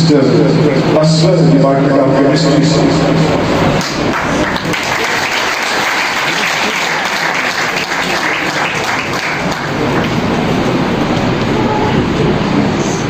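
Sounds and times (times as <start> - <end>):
audience applauding: 3.7 - 10.8.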